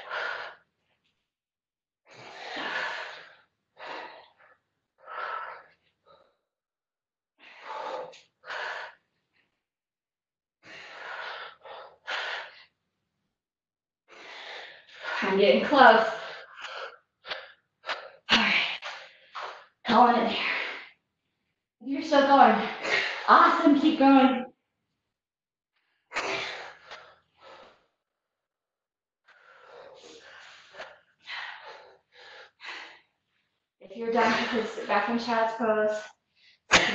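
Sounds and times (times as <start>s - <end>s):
woman breathing hard: 2.1s - 6.5s, 7.4s - 9.1s, 10.6s - 12.8s, 14.1s - 15.3s, 29.3s - 33.4s.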